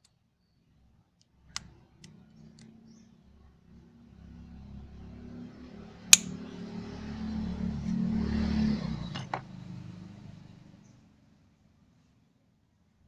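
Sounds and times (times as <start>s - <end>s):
vehicle engine hum: 2.2s - 10.9s
pliers clicking on metal: 6.1s - 6.3s.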